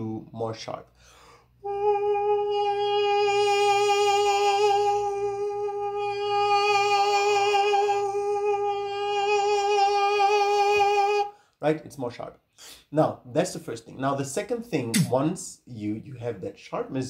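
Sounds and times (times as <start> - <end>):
man singing a steady high note: 1.6 - 11.4.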